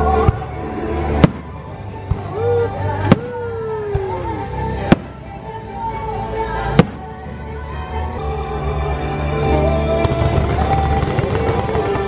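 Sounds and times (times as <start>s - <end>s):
show soundtrack music: 0.0s - 12.0s
fireworks bangs: 10.0s - 12.0s.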